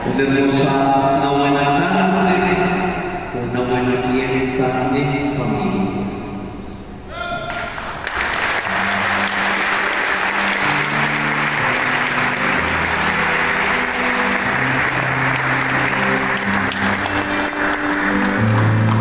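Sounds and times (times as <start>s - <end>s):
congregation clapping: 7.5s - 19.0s
music with long low notes: 8.3s - 19.0s.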